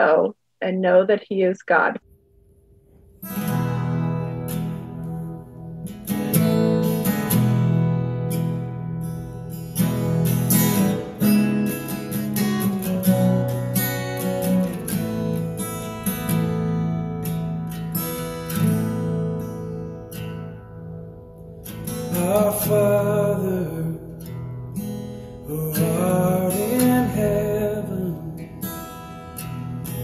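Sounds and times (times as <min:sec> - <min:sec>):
acoustic guitar strumming chords: 0:03.2 - 0:30.0.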